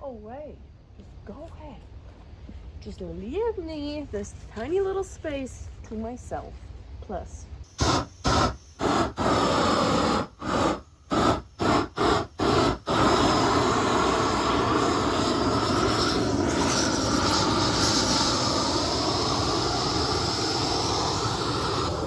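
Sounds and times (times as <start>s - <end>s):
propane torch flame blowing: 7.7s - 22.0s.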